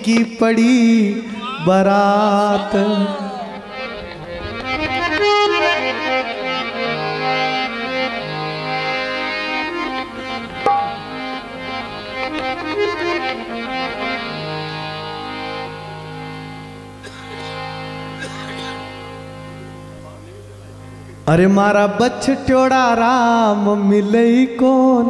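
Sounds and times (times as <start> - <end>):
harmonium melody over drone: 0.0 - 25.0.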